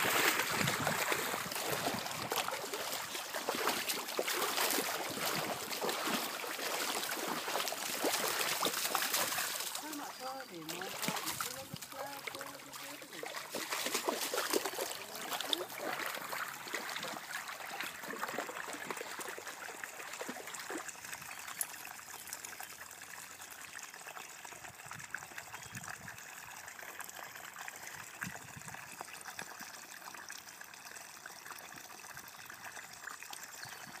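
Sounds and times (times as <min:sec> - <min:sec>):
creek trickling over its bed: 0:00.0 - 0:34.0.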